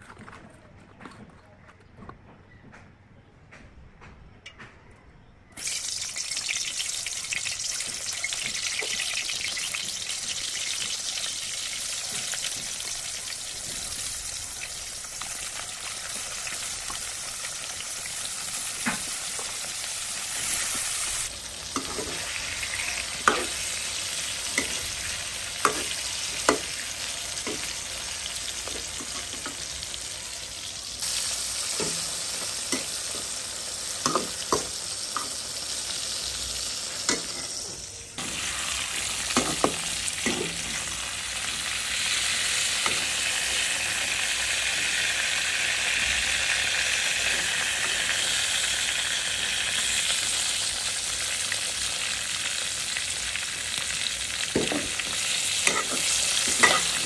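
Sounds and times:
vegetables sizzling in hot oil: 0:05.6 - 0:57.0
metal spoon clinking against pan: 0:55.7 - 0:57.0.

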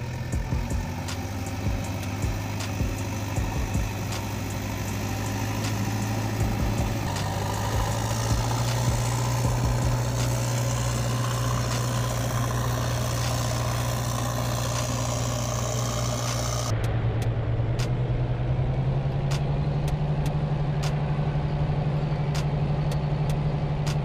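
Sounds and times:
diesel engine idling: 0:00.0 - 0:24.0.

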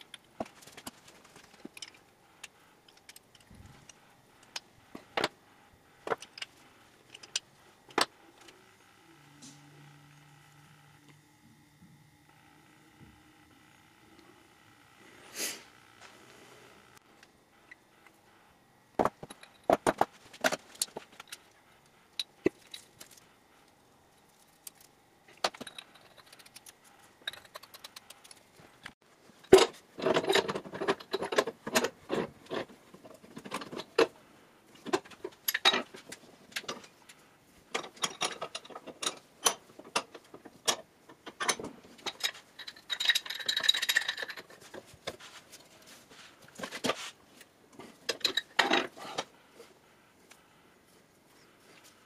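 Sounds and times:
pipe wrench turning iron pipe: 0:25.4 - 0:28.4, 0:37.8 - 0:44.5
metal tools clinking: 0:41.4 - 0:44.8.

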